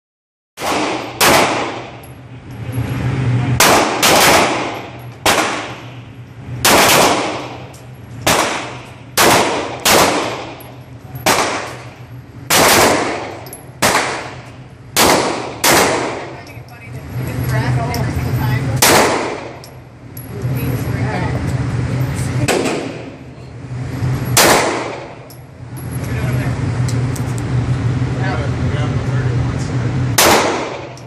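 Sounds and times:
pistol shots ringing indoors: 0:00.6 - 0:02.1, 0:03.6 - 0:06.0, 0:06.6 - 0:16.4, 0:18.8 - 0:19.7, 0:24.4 - 0:25.4, 0:30.2 - 0:31.0.

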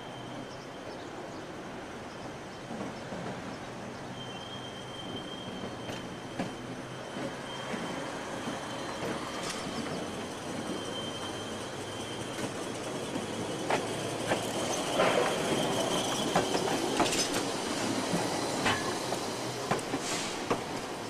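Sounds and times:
streetcar wheels clicking over rail joints: 0:08.5 - 0:10.7, 0:12.2 - 0:21.0
thin wheel squeal: 0:10.6 - 0:12.5.

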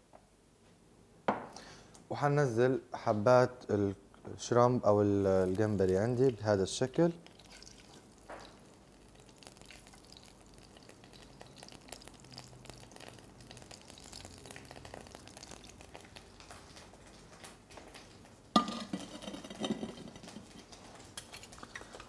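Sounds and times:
shrimp sizzling in oil: 0:07.2 - 0:22.0.

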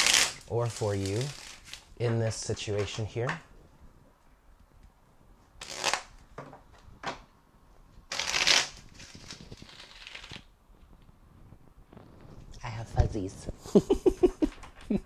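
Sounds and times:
cards being shuffled: 0:05.6 - 0:06.1, 0:08.1 - 0:10.5.

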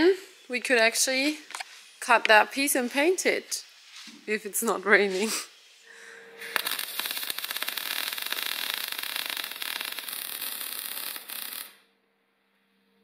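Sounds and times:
arc welding crackle: 0:06.4 - 0:11.9.

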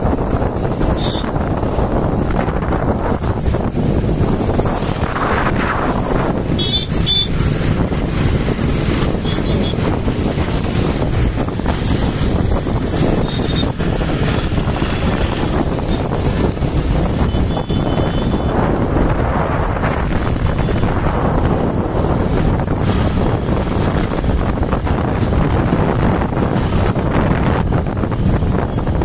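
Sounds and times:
motorbike engine and road noise: 0:00.0 - 0:29.0
wind buffeting the microphone: 0:00.0 - 0:29.0.

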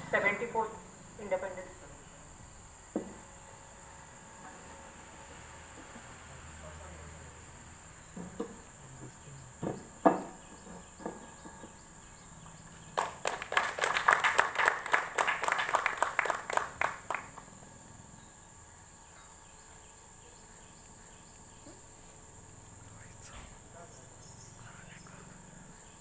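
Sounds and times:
crickets trilling: 0:00.0 - 0:26.0
knocks: 0:09.6 - 0:11.7
small group clapping: 0:12.9 - 0:17.5.

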